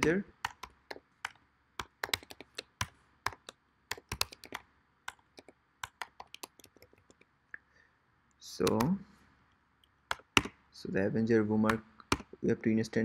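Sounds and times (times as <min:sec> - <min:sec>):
computer keyboard typing: 0:00.0 - 0:07.3, 0:08.6 - 0:09.0, 0:10.1 - 0:10.6, 0:11.7 - 0:12.4.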